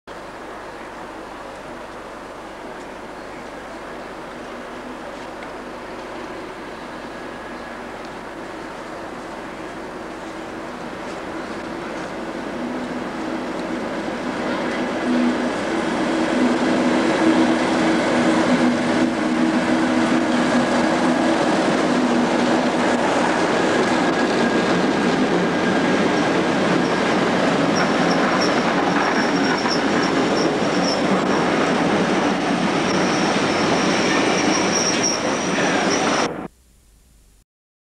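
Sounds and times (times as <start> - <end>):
coaches rolling on rails: 0.2 - 36.4
diesel locomotive engine running: 0.3 - 36.5
high-pitched wheel squeal: 27.8 - 31.4, 32.8 - 36.3.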